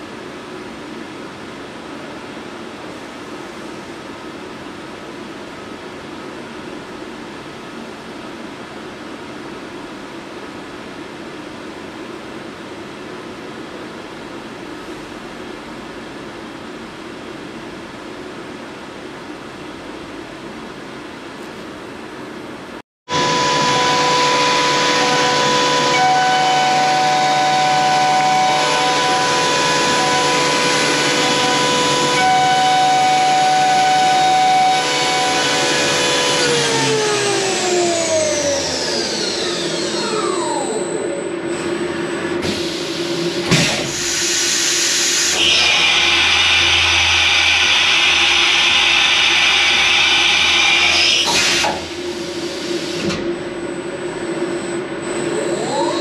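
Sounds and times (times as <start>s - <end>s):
milling machine spindle whine: 23.1s - 56.0s
machine hiss: 42.4s - 53.1s.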